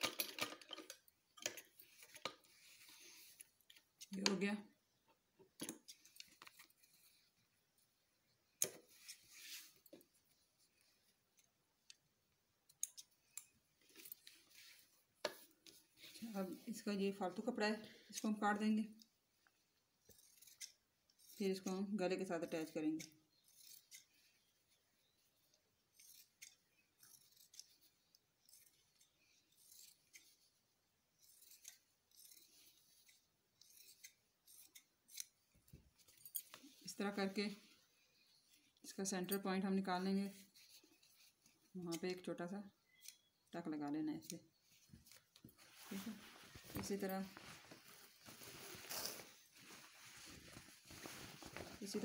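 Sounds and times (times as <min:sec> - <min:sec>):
fabric rustling: 0:08.8 - 0:11.1, 0:13.7 - 0:17.2, 0:44.6 - 0:52.0
scissors snipping fabric: 0:20.0 - 0:24.2, 0:25.9 - 0:30.5, 0:31.1 - 0:35.4.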